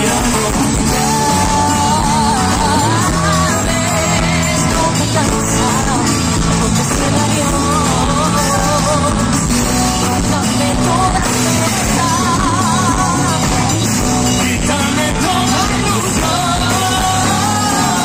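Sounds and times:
live pop band playing: 0.0 - 18.0.

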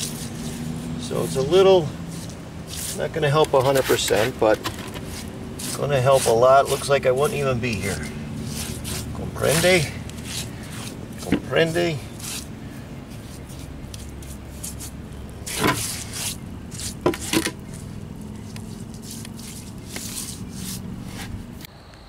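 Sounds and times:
louder scrapes: 0.0 - 21.6
wet scrubbing strokes: 0.0 - 21.7.

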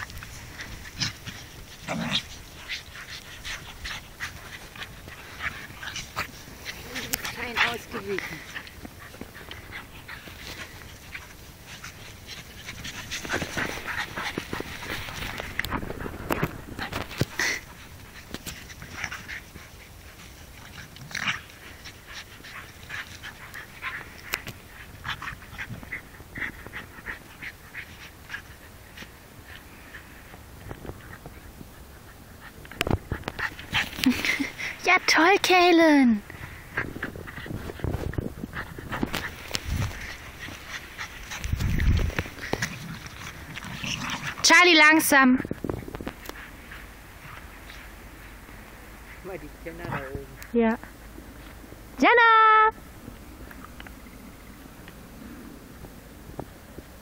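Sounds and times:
breathy rustles in snow: 0.0 - 34.9, 36.2 - 44.4
dogs panting: 0.0 - 51.6.

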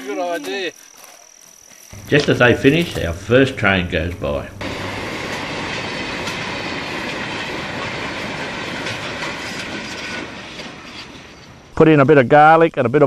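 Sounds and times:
distant freight train rumbling: 1.9 - 12.4
wheels clicking over rails: 2.0 - 11.8.

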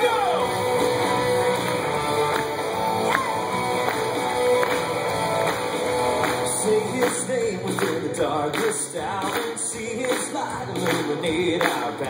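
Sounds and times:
electric guitar strumming: 0.0 - 8.1
band playing: 0.0 - 12.0.

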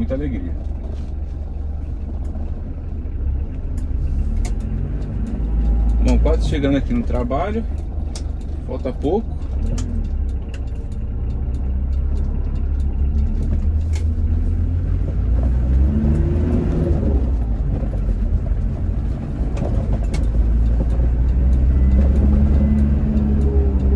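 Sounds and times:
diesel engine running: 0.0 - 23.9
road rumble: 0.0 - 23.9.

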